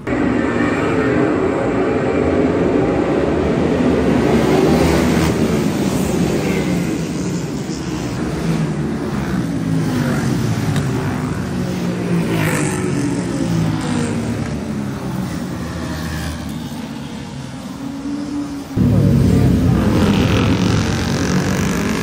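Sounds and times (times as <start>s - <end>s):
motorcycles riding past: 8.3s - 22.0s.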